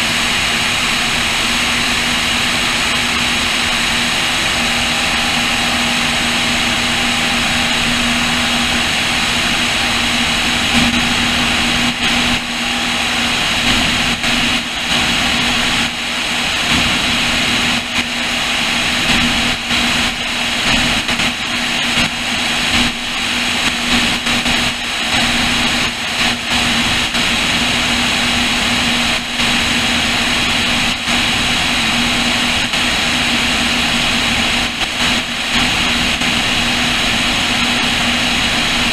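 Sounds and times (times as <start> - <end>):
propeller engines droning: 0.0 - 38.9
heavy wind rush: 1.2 - 20.6.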